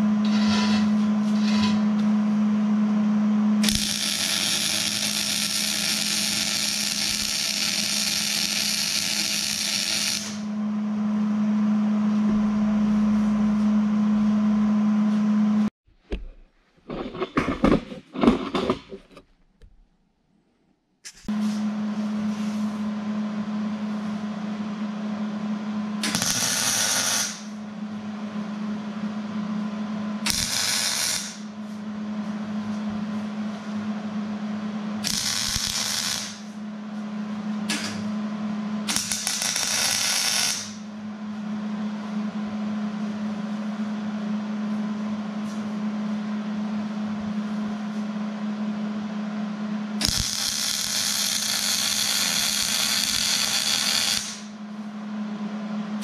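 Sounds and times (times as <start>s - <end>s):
steady hum: 0.0s - 19.2s, 21.0s - 56.0s
arc welder crackling: 3.6s - 10.5s, 26.0s - 27.6s, 30.2s - 31.5s, 35.0s - 36.6s, 37.6s - 38.2s, 38.8s - 40.9s, 50.0s - 54.6s.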